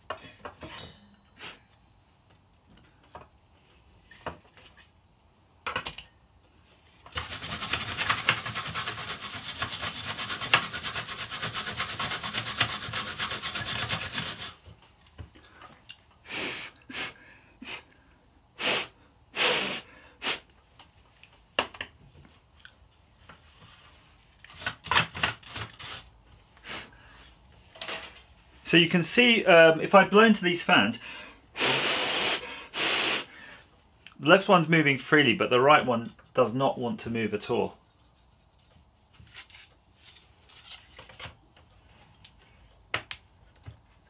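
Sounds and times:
brush scrubbing plastic: 7.2s - 14.6s.

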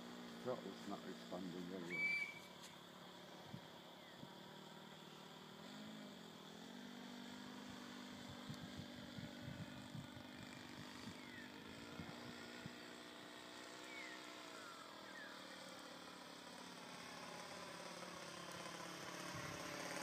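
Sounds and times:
model aircraft engine drone: 0.0s - 20.0s.

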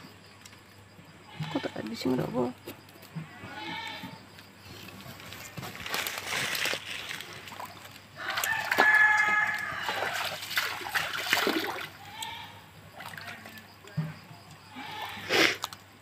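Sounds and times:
water splashing: 6.2s - 12.2s, 12.9s - 13.8s.

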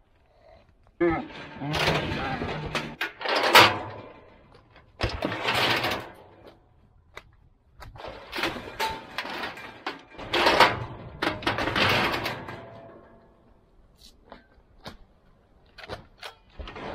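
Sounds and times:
steel gate clanging: 1.0s - 6.5s, 8.0s - 13.4s.

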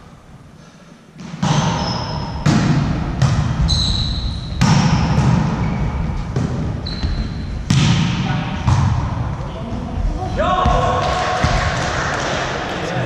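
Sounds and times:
volleyball hits echoing: 1.2s - 3.7s, 4.4s - 9.4s, 10.4s - 12.8s
sports shoes squeaking: 1.4s - 2.4s, 3.6s - 7.7s.

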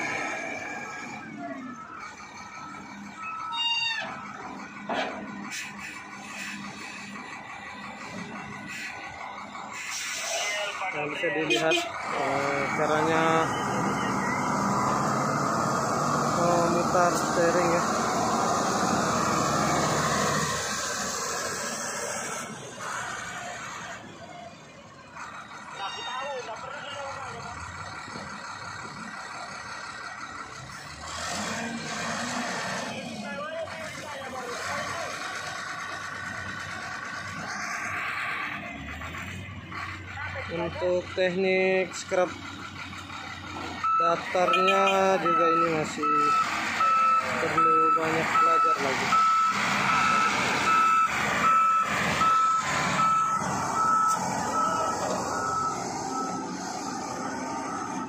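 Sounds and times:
loader diesel engine revving: 0.0s - 58.0s
backup alarm beeping: 43.8s - 56.5s.

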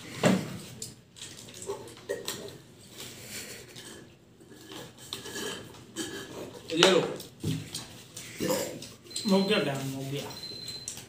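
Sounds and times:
paper cups and wrappers rustling: 0.0s - 11.0s
sipping through straws: 7.6s - 10.4s.

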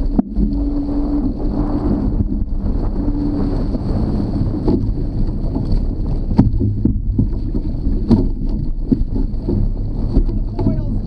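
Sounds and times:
high whine: 0.0s - 4.4s
water rushing along hulls: 0.0s - 11.0s
water slapping hull: 0.0s - 11.0s
wind buffeting microphone: 0.0s - 11.0s.

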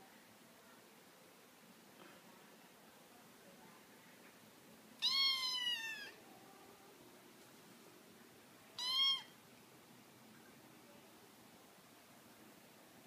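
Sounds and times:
kitten meowing: 5.0s - 6.2s, 8.8s - 9.4s.

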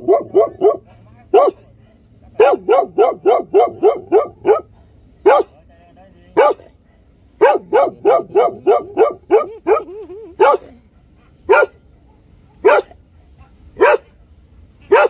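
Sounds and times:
dog yelping: 0.0s - 1.6s, 2.4s - 5.5s, 7.4s - 10.8s, 11.5s - 11.8s, 12.6s - 13.0s, 13.8s - 14.2s
dog barking: 0.0s - 1.7s, 2.4s - 5.6s, 6.4s - 6.8s, 7.4s - 10.8s, 11.5s - 13.0s, 13.8s - 14.2s.

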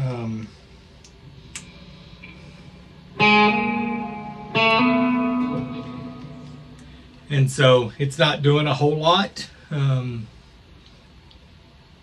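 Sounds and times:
electric guitar chords strummed: 3.0s - 7.5s.

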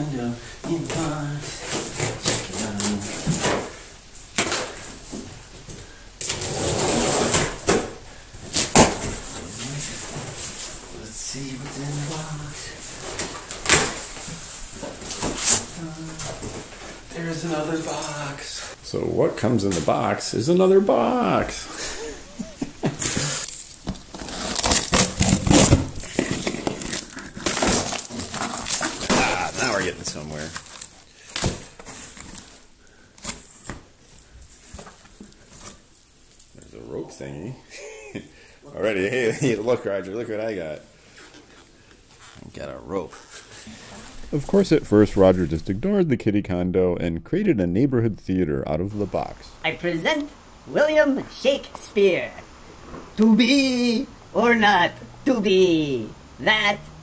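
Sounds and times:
cardboard and plastic rustling: 0.7s - 10.9s, 11.5s - 17.3s, 23.0s - 36.6s
packing tape ripping: 23.4s - 29.8s, 30.4s - 32.6s
cardboard scraping and rustling: 23.9s - 32.6s.

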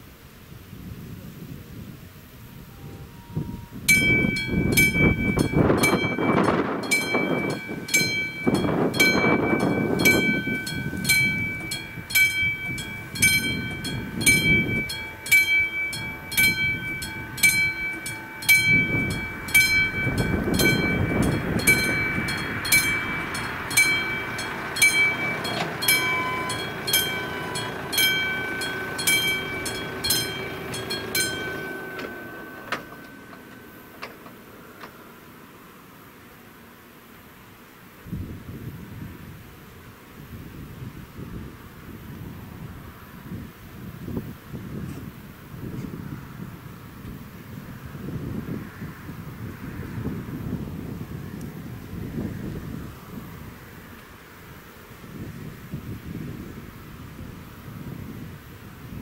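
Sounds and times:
low rushing noise: 2.2s - 36.0s
level crossing bell ringing: 3.9s - 33.9s.

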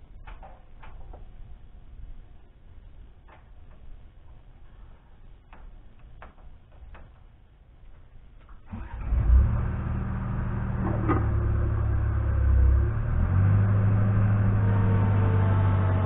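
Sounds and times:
diesel engine starting and idling: 8.6s - 16.0s.

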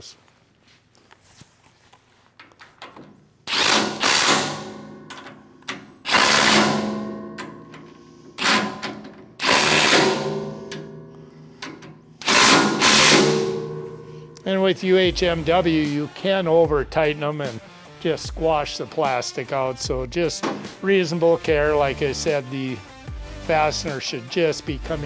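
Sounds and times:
cordless impact wrench bursts: 3.4s - 10.9s, 11.6s - 13.9s.

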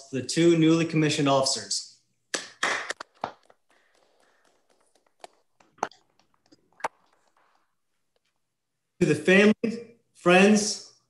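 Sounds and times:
hands clapping in applause: 2.3s - 5.3s.

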